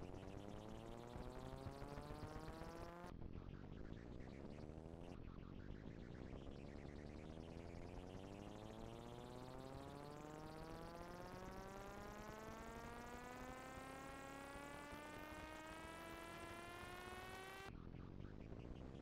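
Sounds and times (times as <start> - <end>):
rising synthesizer tone: 10.6 - 17.7.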